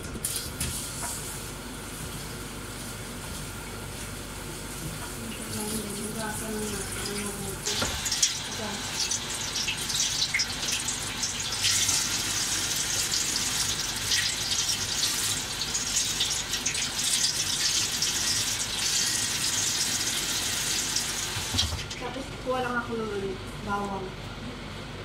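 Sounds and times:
faucet water splashing into sink: 0:06.7 - 0:22.0.

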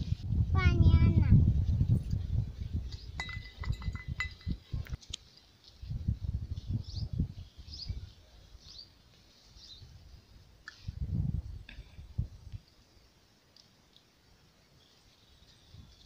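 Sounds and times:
bird chirping: 0:06.7 - 0:09.9.

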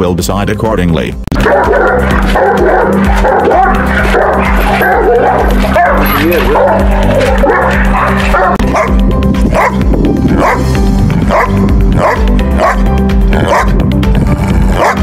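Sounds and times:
background music: 0:00.0 - 0:15.0
dog barking: 0:01.4 - 0:09.8, 0:10.4 - 0:10.7, 0:11.3 - 0:12.8, 0:13.4 - 0:13.8, 0:14.8 - 0:15.0.

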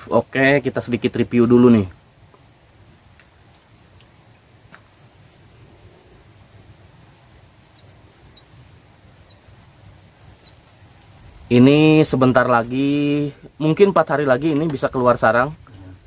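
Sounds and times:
soft clicks of twigs: 0:03.1 - 0:04.9.

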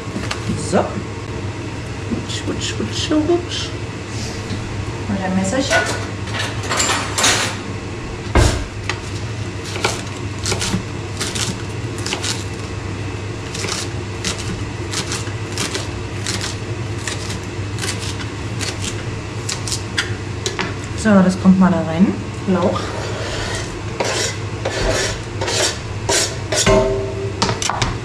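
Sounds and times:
steady low hum: 0:00.0 - 0:28.0
knife chopping on cutting board: 0:09.7 - 0:12.4.

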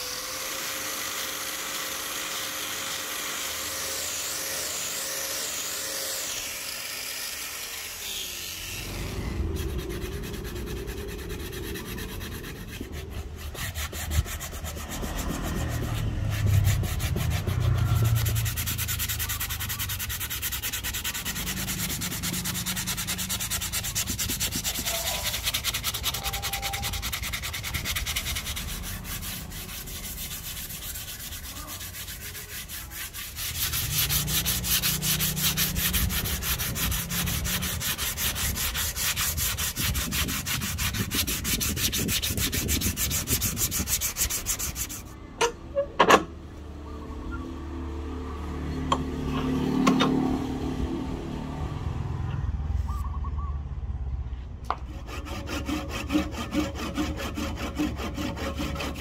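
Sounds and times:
power tool whining: 0:00.0 - 0:32.0
sanding wood by hand: 0:00.0 - 0:45.2, 0:54.7 - 0:59.0.

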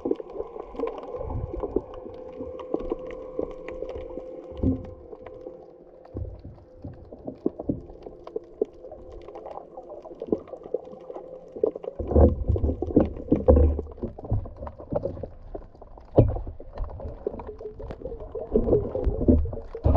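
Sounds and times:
faint steady hum: 0:00.0 - 0:19.9
muffled underwater sloshing: 0:00.0 - 0:19.9
low underwater thuds: 0:06.1 - 0:08.1.

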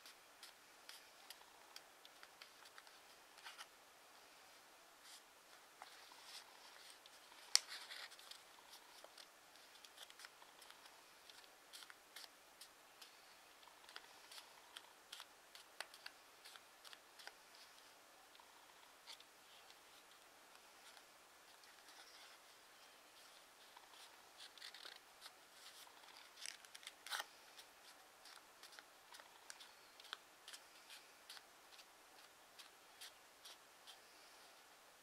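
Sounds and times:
paper crackling while folded: 0:05.0 - 0:20.2, 0:23.2 - 0:34.0.

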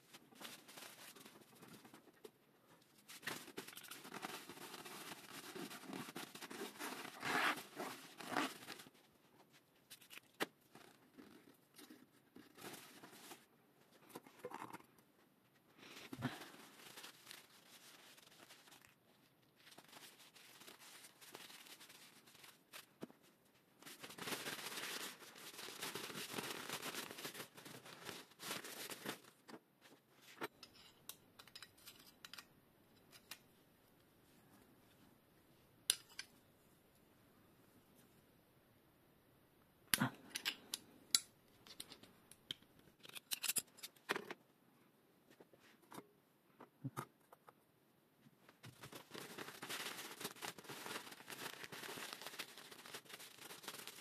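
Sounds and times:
paper towels crinkling: 0:00.0 - 0:02.1, 0:02.9 - 0:13.5, 0:15.8 - 0:30.4, 0:48.6 - 0:54.0.

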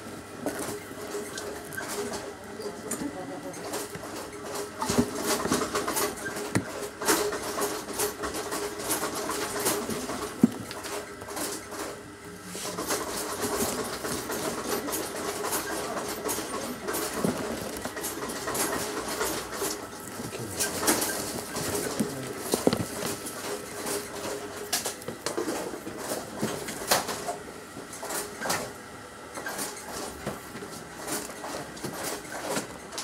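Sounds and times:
rummaging in leather bag: 0:12.6 - 0:24.3.

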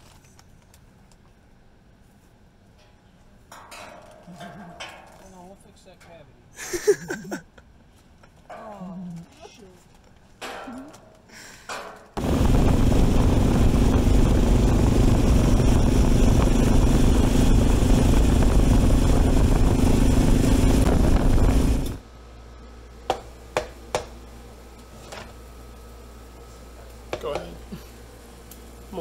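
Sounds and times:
vehicle engine running: 0:12.2 - 0:22.0.

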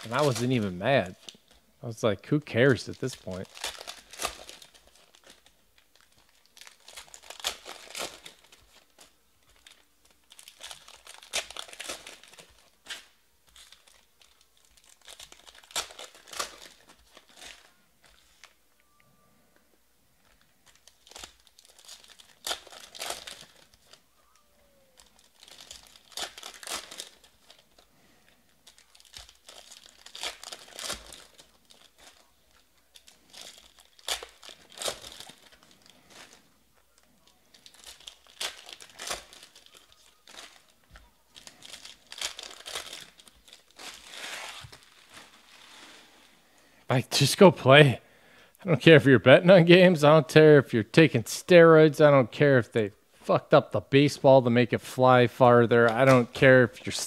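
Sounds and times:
foil wrappers crinkling and tearing: 0:00.0 - 0:01.6, 0:02.5 - 0:18.6, 0:20.2 - 0:46.4, 0:55.6 - 0:57.0.

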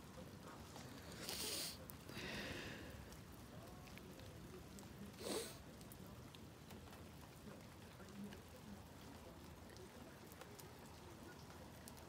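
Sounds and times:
raindrops ticking: 0:00.0 - 0:12.0
short breathy sniff: 0:01.2 - 0:02.5, 0:05.2 - 0:05.6.

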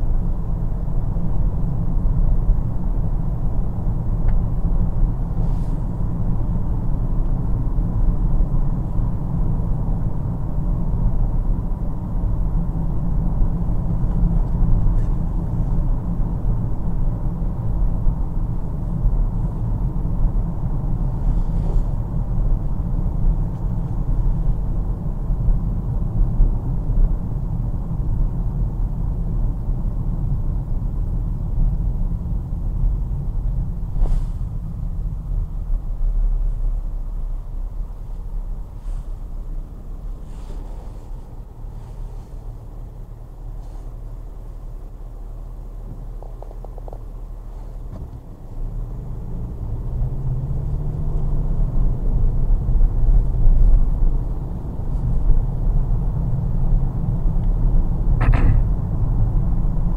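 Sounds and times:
car road and engine rumble: 0:00.0 - 0:59.9.

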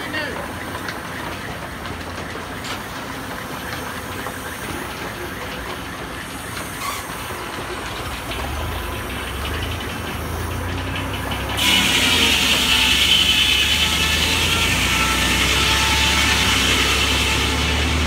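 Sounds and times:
engine running steadily: 0:00.0 - 0:18.0
saw blade whining into log: 0:11.6 - 0:18.0.

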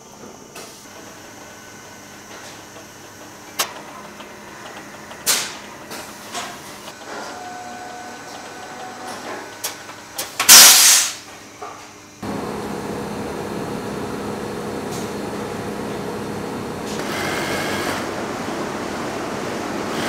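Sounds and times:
weaving machinery hum: 0:00.0 - 0:10.5, 0:11.4 - 0:20.0
loud rushing hiss: 0:10.4 - 0:11.3.

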